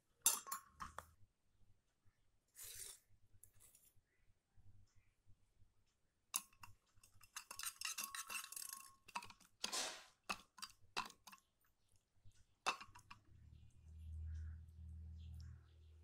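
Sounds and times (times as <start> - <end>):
metal spoon clinking in steel bowl: 0.2 - 1.0, 6.4 - 9.5.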